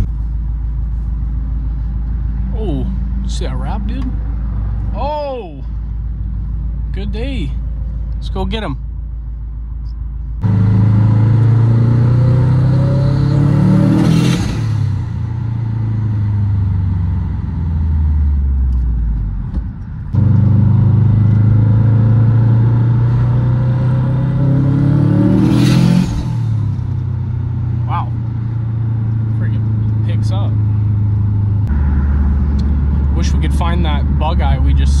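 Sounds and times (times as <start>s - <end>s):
turbocharged car engine revving: 10.4s - 18.8s, 20.2s - 35.0s.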